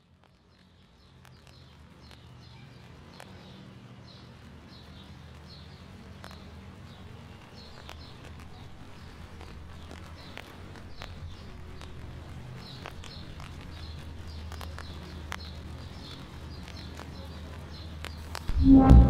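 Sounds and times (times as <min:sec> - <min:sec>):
low rumble: 0:18.5 - 0:19.0.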